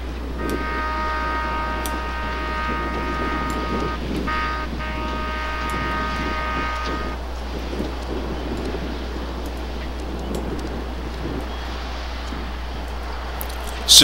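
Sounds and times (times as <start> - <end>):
train air horn blasts: 0.2 - 8.9.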